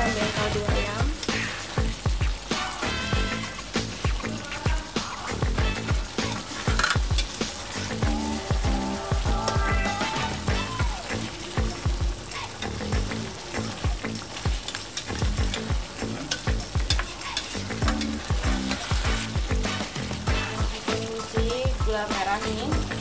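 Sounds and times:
sauce sizzling and bubbling: 0:00.0 - 0:23.0
metal spatula scraping wok: 0:02.4 - 0:10.3, 0:12.5 - 0:21.5.

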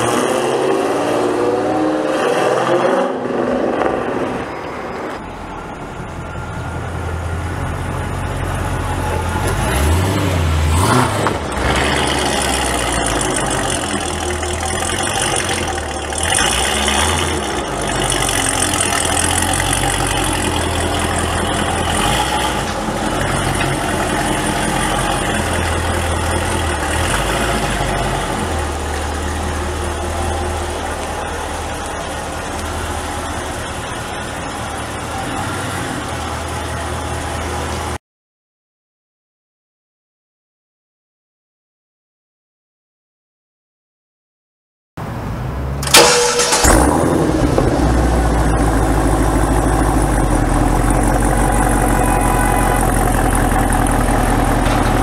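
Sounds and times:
car engine idling: 0:05.2 - 0:38.0, 0:45.8 - 0:55.0.

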